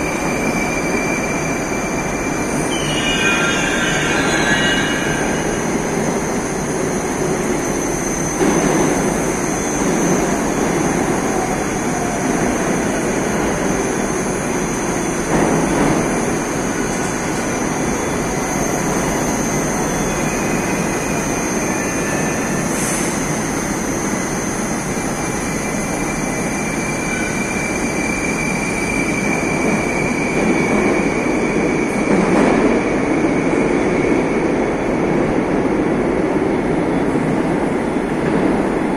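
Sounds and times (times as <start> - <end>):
train wheels rumbling on rails: 0.0 - 38.9
thin high whine: 1.7 - 6.6.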